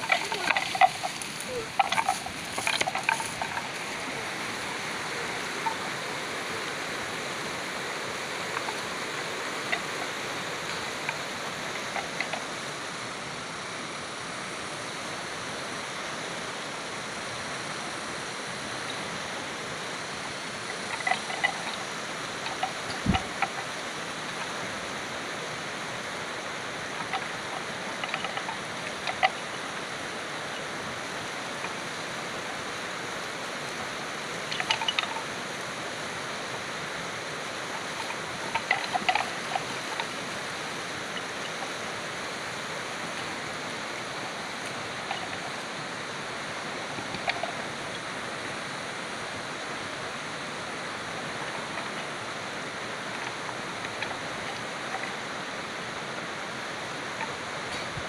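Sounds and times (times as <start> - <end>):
horns clacking together: 0.0 - 7.3, 20.7 - 24.7, 26.8 - 33.0, 33.6 - 35.3, 37.6 - 42.3.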